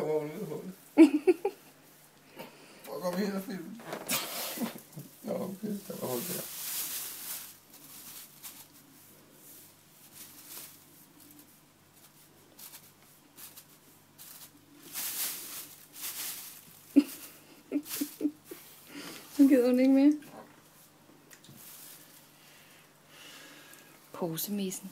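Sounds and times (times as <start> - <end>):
plastic bag rustling: 3.7 - 19.8, 21.5 - 22.4.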